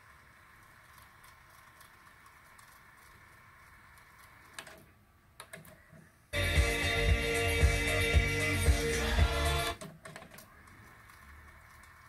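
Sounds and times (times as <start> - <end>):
cassette deck fast-forward whir: 5.8 - 12.0
music playing from tape: 6.4 - 9.8.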